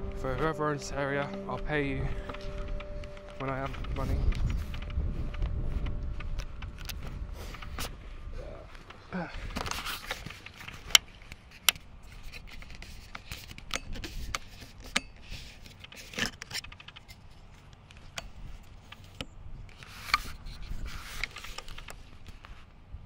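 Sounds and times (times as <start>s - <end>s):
low rumble: 0.0s - 9.6s
camera handling rustling: 2.2s - 8.0s, 8.7s - 22.7s.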